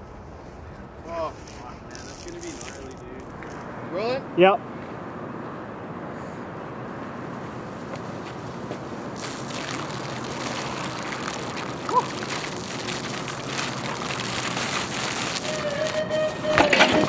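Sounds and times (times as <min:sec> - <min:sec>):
bike tyres rolling on icy surface: 0:00.0 - 0:04.2, 0:07.5 - 0:17.0
tyre squeak: 0:09.2 - 0:17.0.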